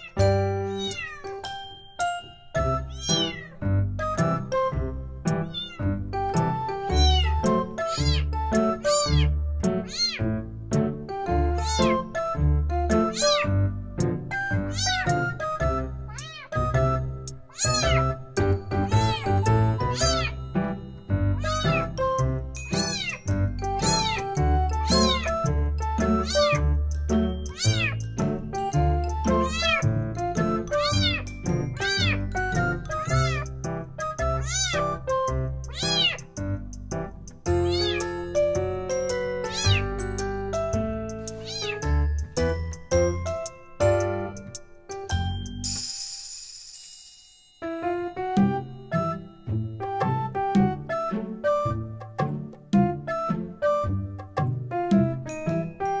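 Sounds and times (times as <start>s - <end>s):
kitten meowing: 0.0s - 1.4s, 2.6s - 3.7s, 5.4s - 10.4s, 11.5s - 12.3s, 12.9s - 13.7s, 14.3s - 16.6s, 17.5s - 20.6s, 21.3s - 36.4s, 37.5s - 38.4s, 39.4s - 40.2s, 41.1s - 42.0s
background music: 0.0s - 45.9s, 47.6s - 56.0s.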